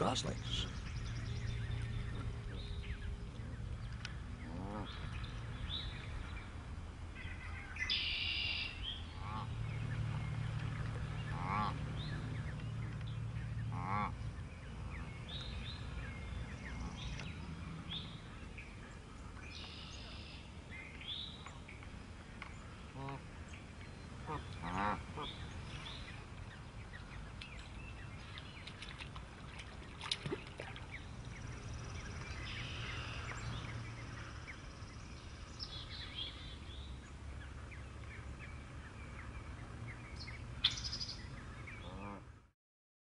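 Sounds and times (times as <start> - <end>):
geese honking: 9.2 - 9.6, 11.3 - 11.8, 13.7 - 14.2, 24.2 - 25.4.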